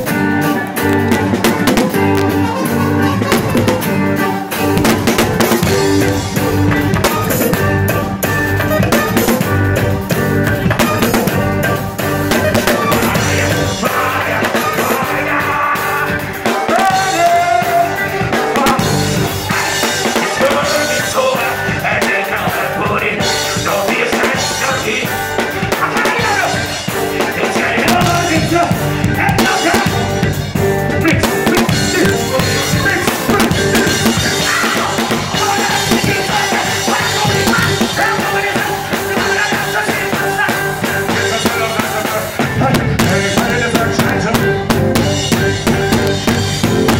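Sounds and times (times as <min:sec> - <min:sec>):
drum kit and cymbals: 0:00.0 - 0:46.9
live reggae band playing: 0:00.0 - 0:46.9
person singing: 0:10.7 - 0:30.3, 0:30.9 - 0:46.3.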